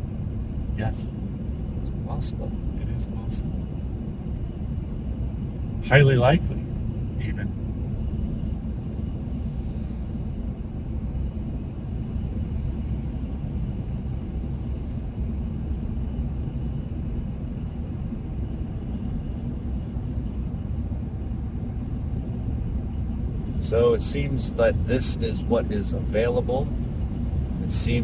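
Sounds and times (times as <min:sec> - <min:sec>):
car cabin road and engine rumble: 0:00.0 - 0:28.0.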